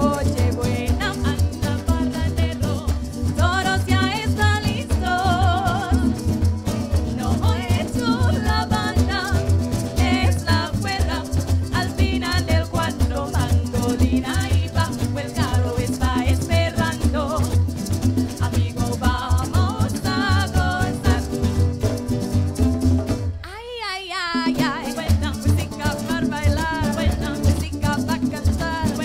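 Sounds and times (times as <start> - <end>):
person singing: 0.0 - 17.7, 18.3 - 21.5, 23.4 - 29.0
strummed string instruments: 0.0 - 23.5, 24.4 - 29.0.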